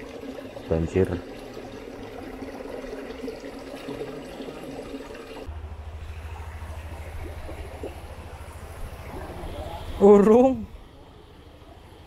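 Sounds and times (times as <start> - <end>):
water rushing in a ditch: 0.0 - 12.0
low steady rumble: 5.4 - 12.0.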